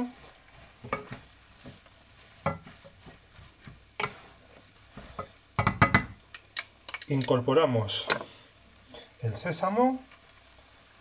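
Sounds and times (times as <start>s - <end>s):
faint sizzling: 0.0s - 11.0s
wooden spoons knocking on a pan: 0.8s - 4.3s, 5.0s - 7.1s.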